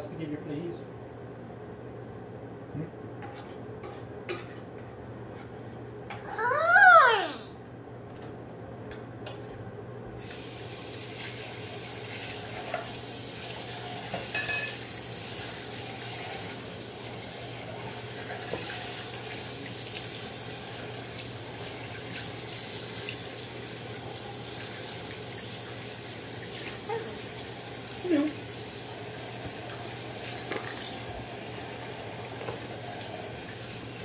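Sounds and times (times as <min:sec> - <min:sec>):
tap water running into sink: 0:10.2 - 0:34.0.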